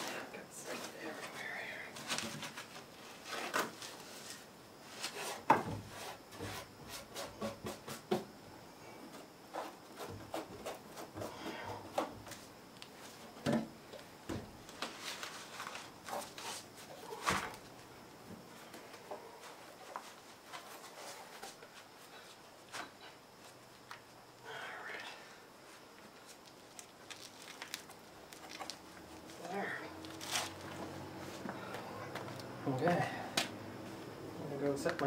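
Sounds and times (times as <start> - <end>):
wooden knocks and scrapes: 5.0 - 8.3.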